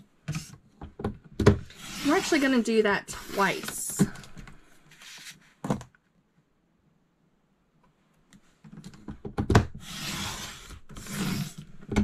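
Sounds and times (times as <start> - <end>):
sliding blade cutting paper: 1.7 - 2.5, 9.8 - 11.6.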